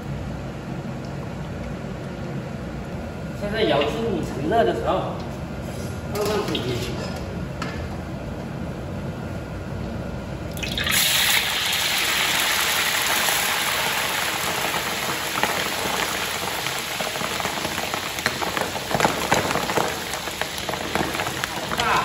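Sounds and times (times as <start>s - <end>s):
loud sizzle in hot oil: 10.6s - 22.0s
oil pops and crackles: 14.5s - 22.0s.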